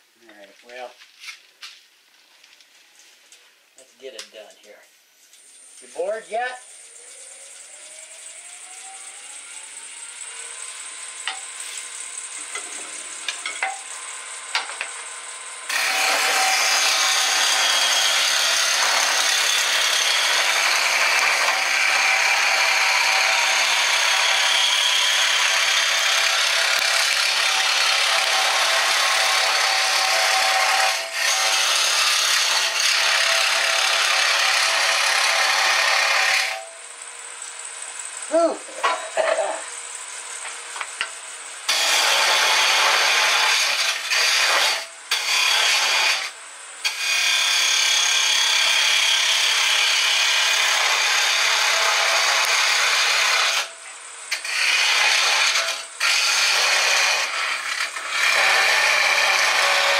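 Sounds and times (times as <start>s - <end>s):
wood lathe humming: 6.6s - 53.7s, 54.3s - 59.9s
gouge cutting wood on lathe: 9.8s - 36.7s, 41.7s - 53.7s, 54.3s - 59.9s.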